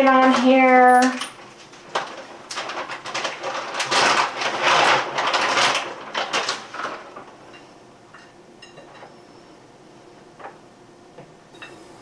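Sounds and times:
rustling and scraping: 0.1s - 9.3s.

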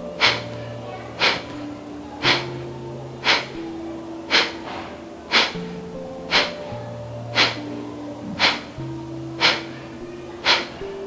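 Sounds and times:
soft background music: 0.0s - 11.0s
forceful nasal exhalations: 0.2s - 0.5s, 1.2s - 1.6s, 2.2s - 2.6s, 3.2s - 3.6s, 4.3s - 5.7s, 6.3s - 6.7s, 7.3s - 7.6s, 8.3s - 8.8s, 9.4s - 9.8s, 10.4s - 10.8s.

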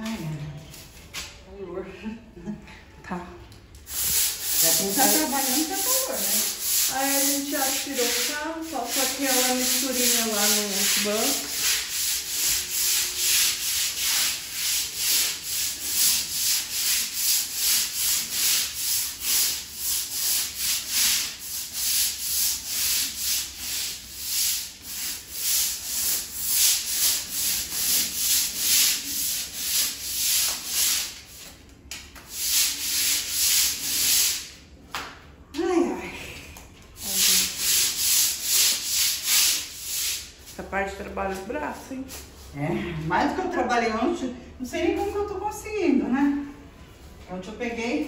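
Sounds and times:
broom scrubbing wet tiled floor: 3.9s - 34.6s, 36.8s - 43.9s, 44.8s - 45.6s
person speaking: 4.4s - 11.5s.

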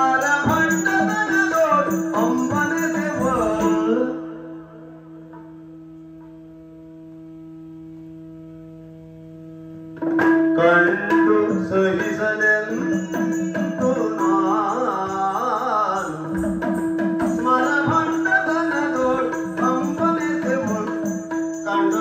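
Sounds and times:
person singing: 0.0s - 5.0s, 10.6s - 16.7s, 17.3s - 22.0s
drum strokes: 10.0s - 21.8s.

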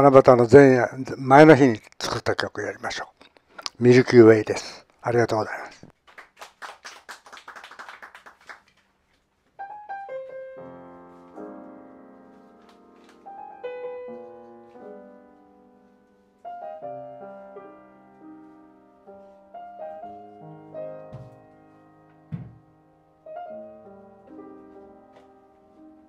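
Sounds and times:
grand piano playing: 9.6s - 26.0s.

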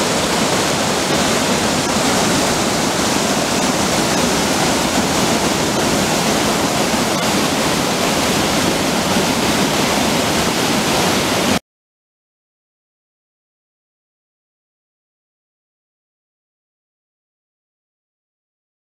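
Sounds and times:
stream rushing over stone: 0.0s - 11.6s.

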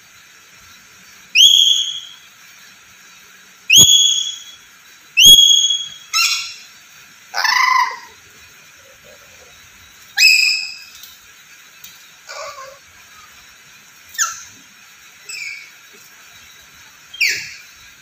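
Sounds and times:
parrot calling with shrill whistles: 1.3s - 2.3s, 3.7s - 6.7s, 7.3s - 8.2s, 10.1s - 11.0s, 14.1s - 14.6s, 15.2s - 15.9s, 17.0s - 17.8s.

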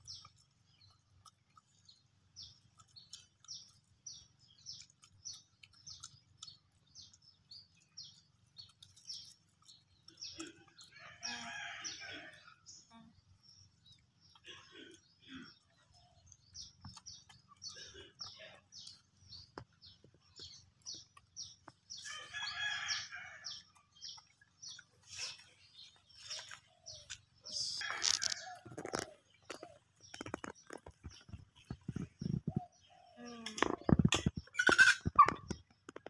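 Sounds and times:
bird chirps: 12.8s - 36.0s.

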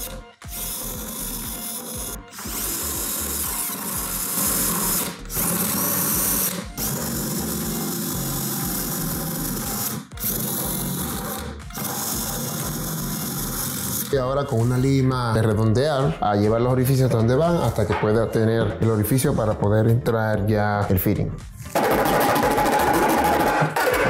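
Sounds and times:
drill boring through plastic: 0.0s - 14.2s, 21.8s - 24.0s.

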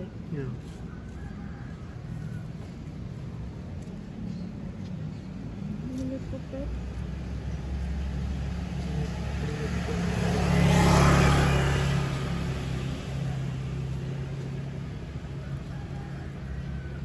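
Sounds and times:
motor scooter passing: 5.7s - 17.0s.

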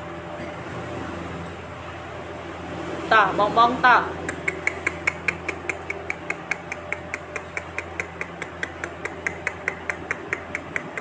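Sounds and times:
low steady hum: 0.0s - 11.0s
rapid mechanical ticking: 4.2s - 11.0s.

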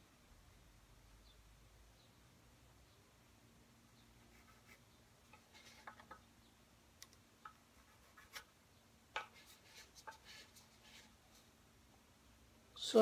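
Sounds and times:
pencil scratching on wood: 4.2s - 6.2s, 7.4s - 8.5s, 9.2s - 11.5s.

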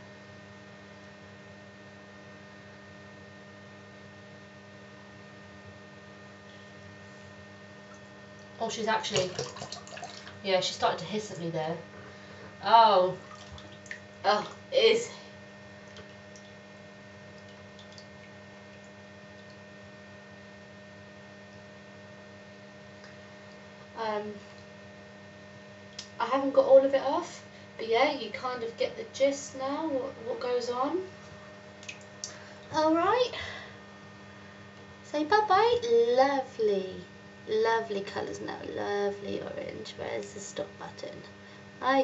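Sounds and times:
steady hum of fixed tones: 0.0s - 42.0s
water dripping: 9.1s - 10.4s, 13.2s - 14.6s, 15.8s - 16.6s, 17.3s - 19.7s, 31.8s - 32.4s.

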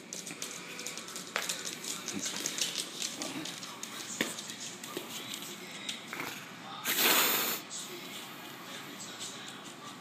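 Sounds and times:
dog claws clicking on wood floor: 0.0s - 6.2s.

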